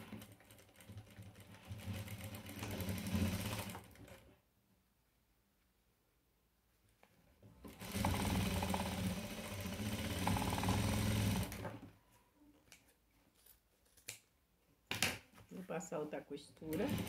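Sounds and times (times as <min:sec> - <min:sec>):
electric sewing machine stitching: 0:00.0 - 0:04.3, 0:07.6 - 0:11.9, 0:16.7 - 0:17.0.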